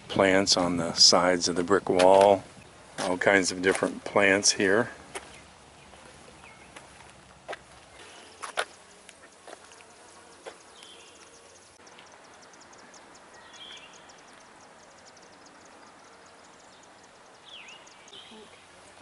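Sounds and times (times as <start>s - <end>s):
faint high ticks: 8.4s - 12.2s
bird chirps: 10.2s - 18.7s.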